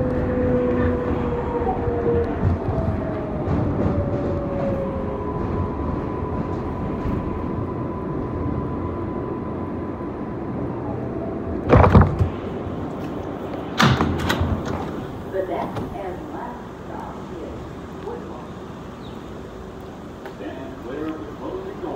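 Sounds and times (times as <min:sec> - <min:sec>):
subway train rumble: 0:00.0 - 0:21.9
loud clunks of train doors: 0:11.6 - 0:16.1.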